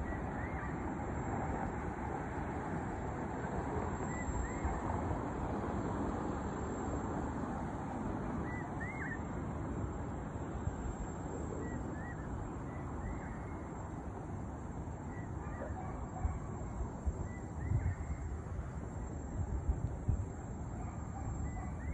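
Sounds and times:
distant city traffic hum: 0:00.0 - 0:21.9
wind on microphone: 0:17.0 - 0:18.7.

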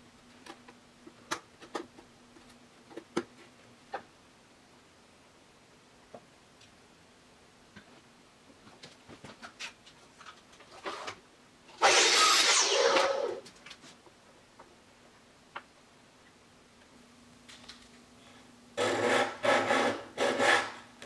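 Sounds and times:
loud hissing scrape: 0:11.8 - 0:13.4.

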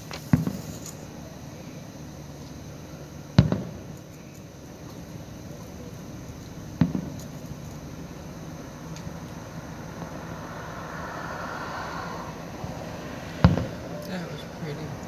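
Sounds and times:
firework bangs: 0:00.0 - 0:01.1, 0:03.3 - 0:04.0, 0:06.8 - 0:07.3, 0:12.6 - 0:14.9
low background hum: 0:00.0 - 0:15.0
echoing rumble: 0:09.3 - 0:15.0.

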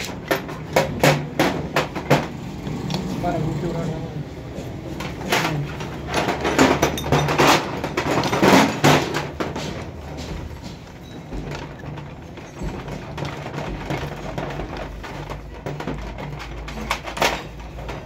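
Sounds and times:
metal tools knocking on engine: 0:05.0 - 0:18.0.

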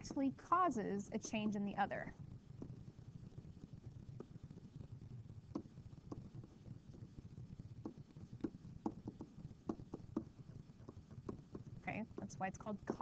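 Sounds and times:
low steady hum: 0:00.0 - 0:13.0
stylus tapping on tablet screen: 0:02.5 - 0:03.0, 0:04.1 - 0:04.6, 0:05.4 - 0:13.0.

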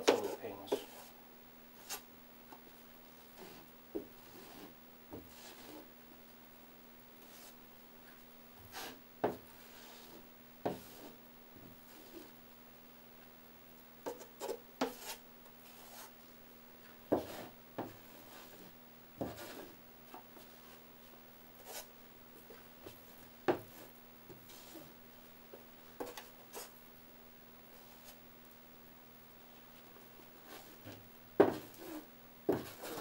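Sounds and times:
faint steady hum: 0:00.0 - 0:33.0
scraping drywall mud: 0:03.2 - 0:05.9, 0:08.7 - 0:11.2, 0:11.8 - 0:12.4, 0:17.2 - 0:19.8, 0:30.4 - 0:33.0.

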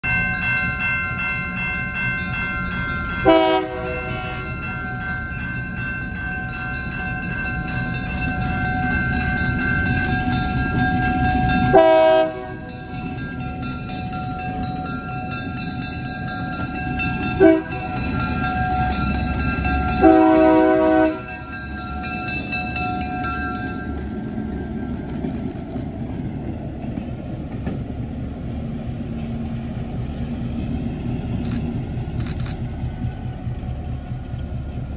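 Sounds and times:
bell ringing: 0:00.0 - 0:24.3
locomotive engine and wheels: 0:00.0 - 0:34.9
locomotive horn blasts: 0:03.2 - 0:04.5, 0:11.7 - 0:12.7, 0:17.4 - 0:18.0, 0:20.0 - 0:21.3.

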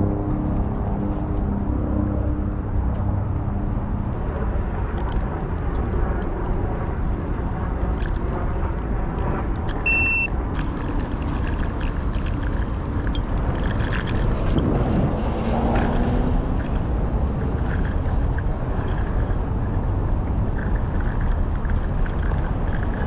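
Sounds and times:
wind rushing over microphone: 0:00.0 - 0:23.0
light rattles and clicks: 0:04.1 - 0:09.9, 0:10.5 - 0:23.0
short high beep: 0:09.9 - 0:10.3.

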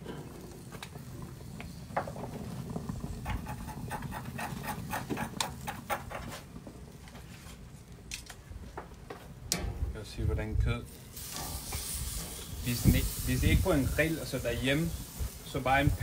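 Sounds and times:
sharp crackles and pops: 0:00.0 - 0:09.7, 0:10.7 - 0:16.0
meat sizzling on a grill: 0:10.8 - 0:16.0.

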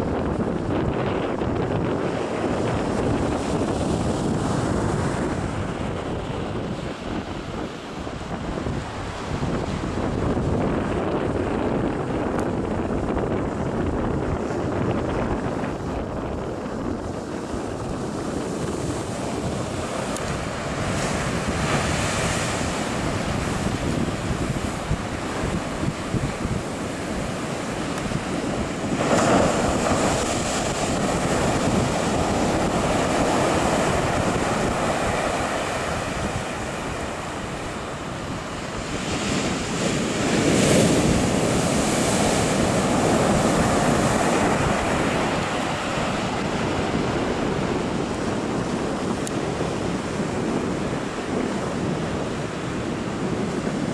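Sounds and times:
ocean surf breaking: 0:00.0 - 0:53.9
wind buffeting microphone: 0:00.0 - 0:53.9
big wave crashing: 0:13.8 - 0:53.9.

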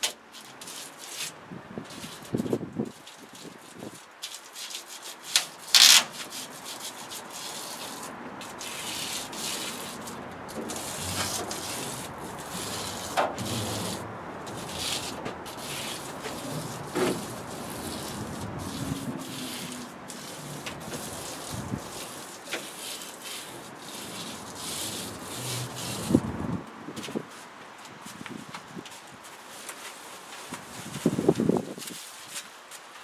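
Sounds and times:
foil insulation crinkling: 0:02.0 - 0:26.3.

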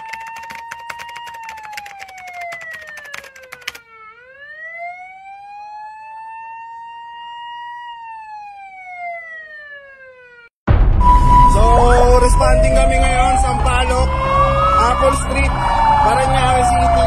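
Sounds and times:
rapid clicking: 0:00.0 - 0:03.8
emergency siren wailing: 0:00.0 - 0:17.0.

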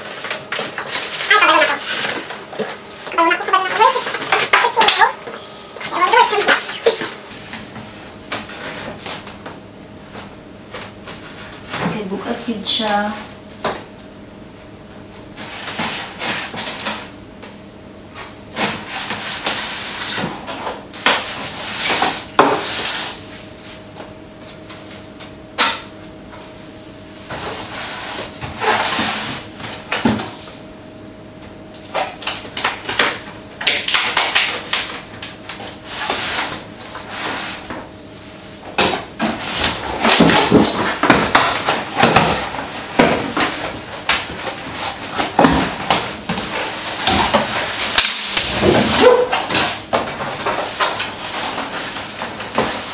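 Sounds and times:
packaging rustling and scraping: 0:00.0 - 0:05.1.

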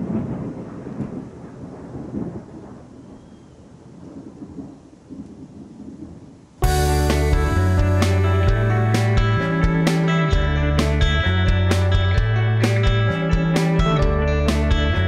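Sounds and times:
guitar music: 0:06.6 - 0:15.0.

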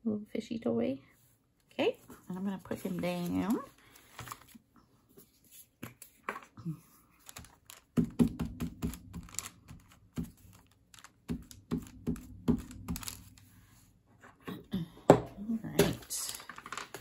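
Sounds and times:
light taps and paper handling: 0:02.0 - 0:13.5.

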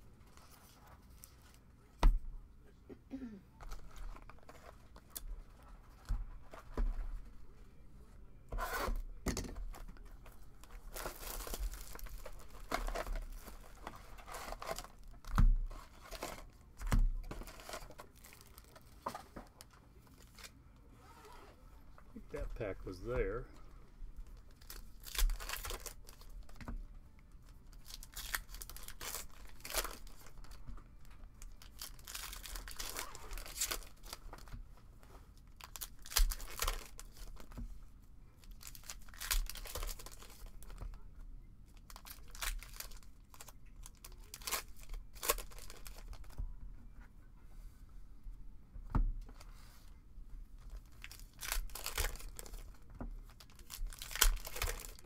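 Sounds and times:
foil wrappers tearing and crinkling: 0:10.6 - 0:15.1, 0:24.5 - 0:26.5, 0:27.7 - 0:30.6, 0:31.4 - 0:34.5, 0:35.5 - 0:37.5, 0:38.4 - 0:40.8, 0:41.8 - 0:46.4, 0:50.8 - 0:55.0.

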